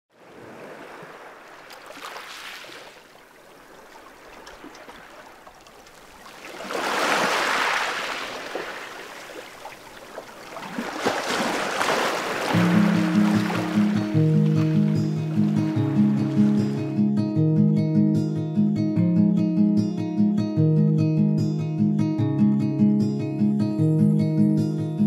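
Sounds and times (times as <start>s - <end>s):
rushing surf-like water: 0.1s - 16.9s.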